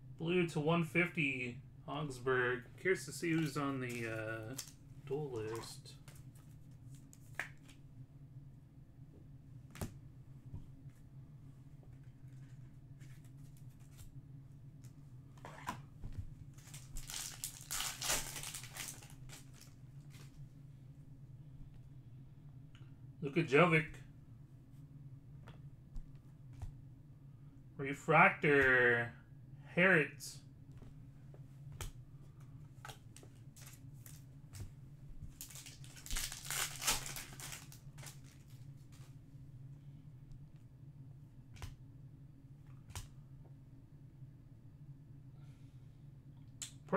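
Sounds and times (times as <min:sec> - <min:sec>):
low steady hum: 0:00.0 - 0:46.9
foil wrapper crinkling and tearing: 0:16.6 - 0:19.8, 0:35.4 - 0:38.6
packs clicking and rustling: 0:35.4 - 0:38.5.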